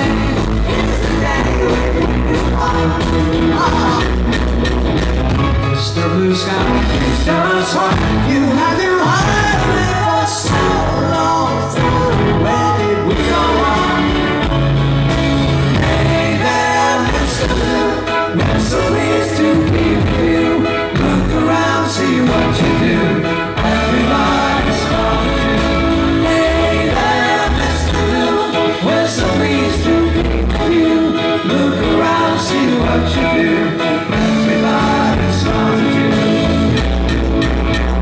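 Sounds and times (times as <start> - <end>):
person singing: 0.0 - 4.7, 5.6 - 37.0
bass guitar: 0.0 - 38.0
drums: 0.0 - 38.0.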